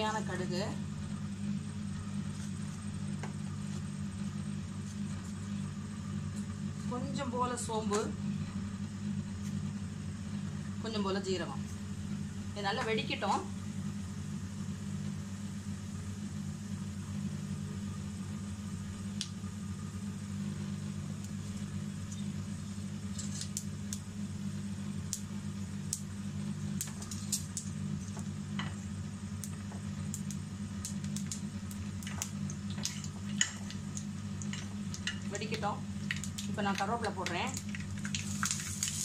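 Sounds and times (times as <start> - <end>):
steady low hum: 0.0 - 39.0
seeds spluttering in hot oil: 16.7 - 39.0.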